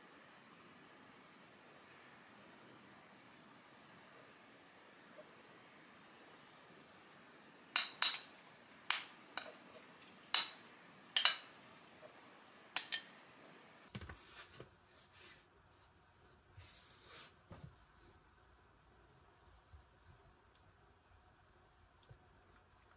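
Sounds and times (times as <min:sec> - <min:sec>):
metal spoon clinking on plastic bowl: 0:07.8 - 0:09.6, 0:10.3 - 0:11.6, 0:12.8 - 0:13.1.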